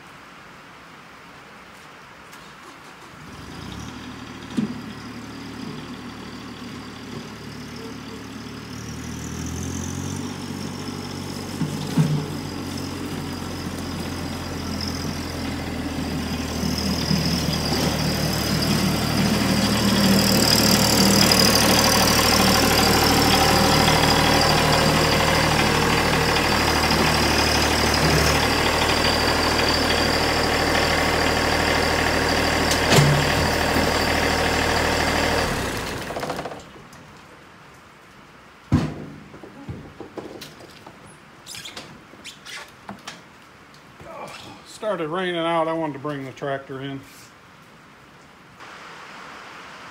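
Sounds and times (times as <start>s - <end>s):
tractor engine running: 2.9s - 36.9s
clunk: 32.7s - 33.4s, 38.7s - 41.0s.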